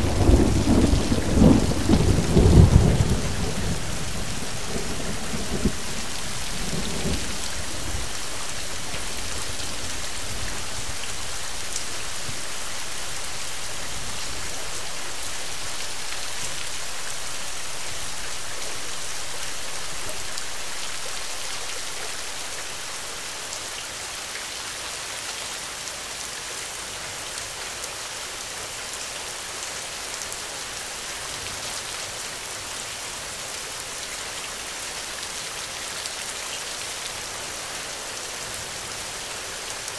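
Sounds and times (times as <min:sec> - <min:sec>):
thunder rumble: 0:00.0 - 0:08.1
heavy rain falling: 0:00.0 - 0:39.9.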